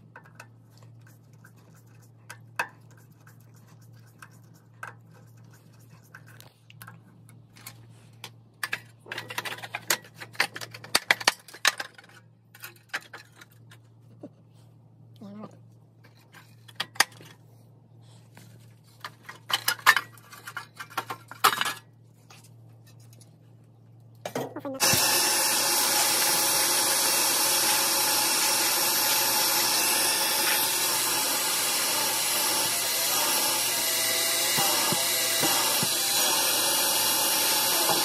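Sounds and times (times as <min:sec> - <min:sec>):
power tool running: 0:24.8 - 0:38.0.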